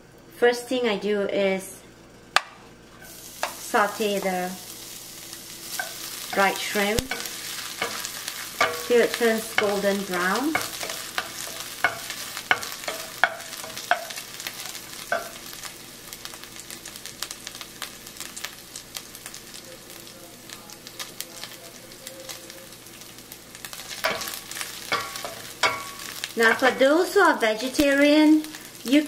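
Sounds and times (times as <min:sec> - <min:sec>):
shrimp sizzling in oil: 0:02.9 - 0:29.0
spatula scraping a pan: 0:05.6 - 0:15.5, 0:23.9 - 0:27.2.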